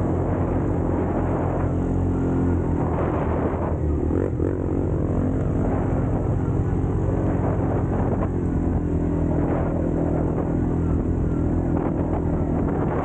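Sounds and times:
atv engine running: 0.0s - 13.0s.

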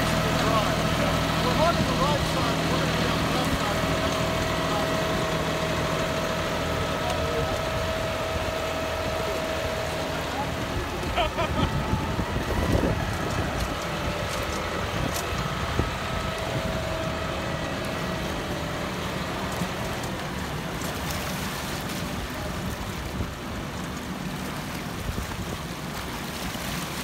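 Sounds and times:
tractor diesel engine running: 0.0s - 25.9s.

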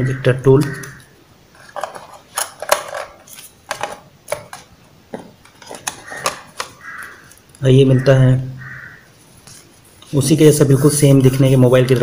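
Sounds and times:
packaging rustling: 1.5s - 7.6s.

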